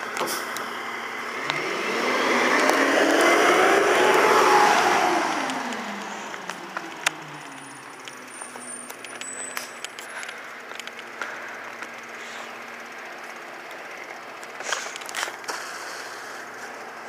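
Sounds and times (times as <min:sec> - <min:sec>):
garbage truck engine: 0:00.0 - 0:17.0
sharp clicks: 0:05.2 - 0:12.6.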